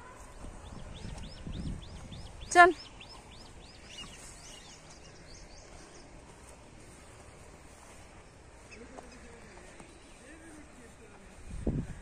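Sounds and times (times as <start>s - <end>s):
bird chirping: 0.0s - 7.3s
faint outdoor background noise: 0.0s - 12.0s.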